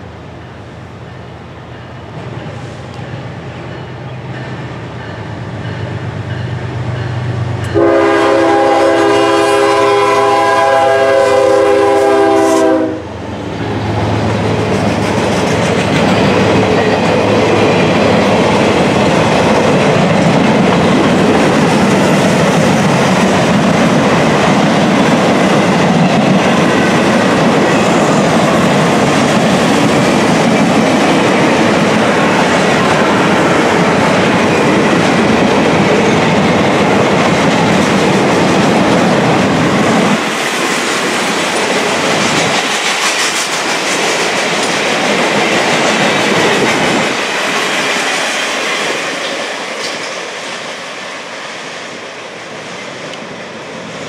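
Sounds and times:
train wheels on rails: 0:00.0 - 0:54.0
train horn blast: 0:07.7 - 0:13.2.

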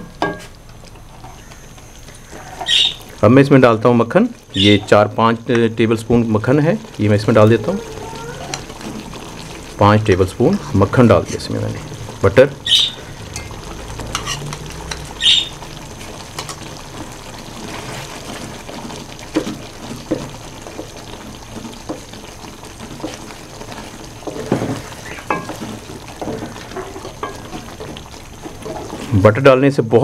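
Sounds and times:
food sizzling in a metal pot: 0:00.0 - 0:30.0
spatula scraping and knocking pot: 0:13.3 - 0:15.0, 0:22.8 - 0:29.1.

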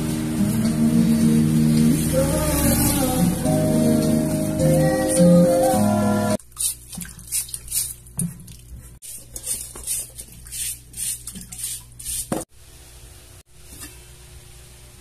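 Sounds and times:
potatoes scraping and rustling: 0:09.0 - 0:12.4.

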